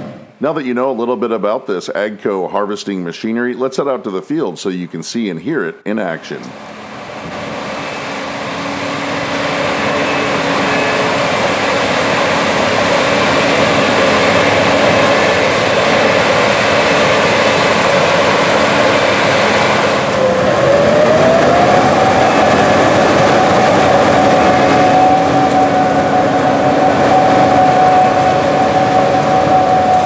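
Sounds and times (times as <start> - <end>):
combine diesel engine running: 6.5 - 30.0
whine changing pitch: 6.5 - 30.0.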